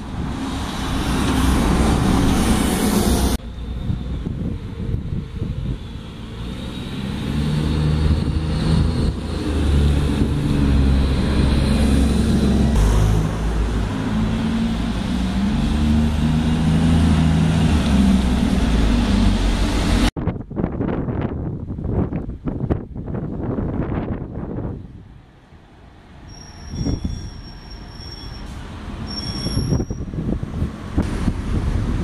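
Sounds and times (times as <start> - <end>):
bus diesel engine passing: 0.0 - 20.1, 25.0 - 29.2.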